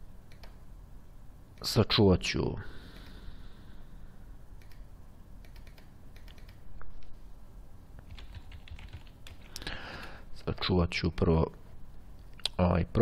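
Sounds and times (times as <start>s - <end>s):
computer keyboard key clicks: 0.3s - 0.6s, 4.6s - 4.8s, 5.4s - 6.6s, 8.0s - 9.4s.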